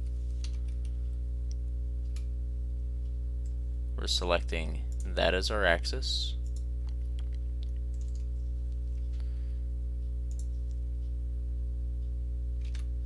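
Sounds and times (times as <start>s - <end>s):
low electrical hum: 0.0s - 13.0s
computer mouse clicking: 6.4s - 8.3s, 10.3s - 10.7s.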